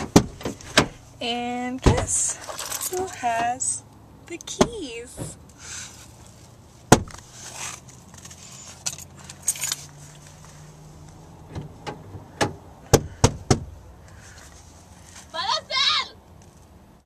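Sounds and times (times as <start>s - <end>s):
keys jangling: 2.4s - 3.2s, 8.7s - 9.9s.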